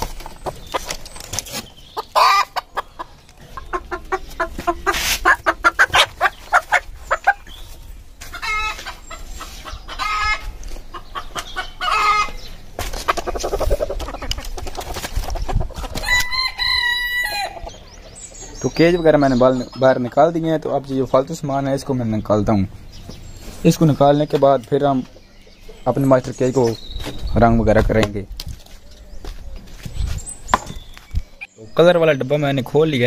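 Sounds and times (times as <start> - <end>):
drawn-out chicken calls: 0.0 - 20.4
chickens clucking: 0.0 - 31.5.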